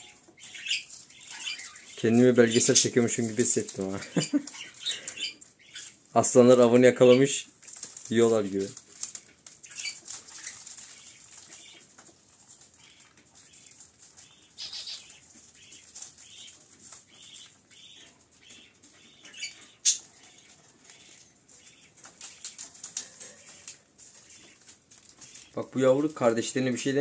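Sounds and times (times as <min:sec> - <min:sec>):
budgerigars chirping: 0:00.0 - 0:07.5, 0:09.2 - 0:12.0, 0:12.6 - 0:26.1
wing flapping: 0:07.5 - 0:17.6.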